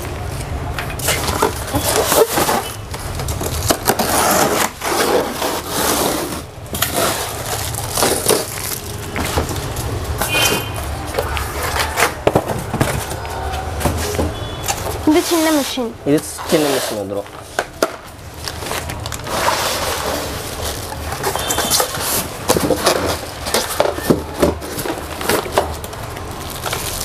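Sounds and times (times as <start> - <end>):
tape and plastic crackling: 0.0 - 27.0
foam lid scraping and squeaking: 1.1 - 2.9, 3.5 - 8.6, 11.5 - 17.2, 19.2 - 25.2.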